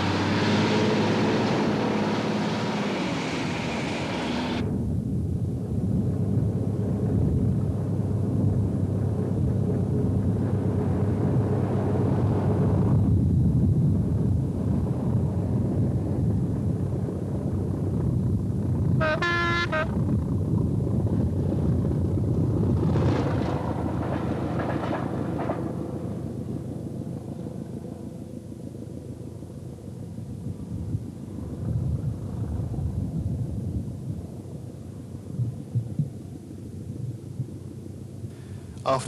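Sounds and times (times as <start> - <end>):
train passing rush: 0.0 - 4.8, 22.7 - 29.8
train low rumble: 1.2 - 39.0
train horn blast: 19.0 - 20.0.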